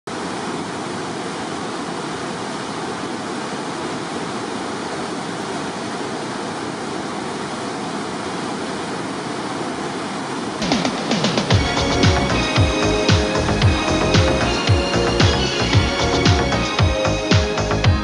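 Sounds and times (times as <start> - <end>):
river water rushing over rapids: 0.1 - 18.0.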